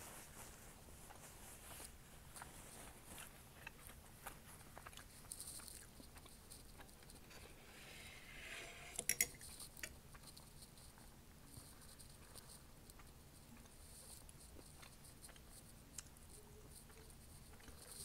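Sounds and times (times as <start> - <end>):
chewing with mouth clicks: 2.3 - 7.2, 10.1 - 18.0
fork clicking on plate: 9.0 - 10.0.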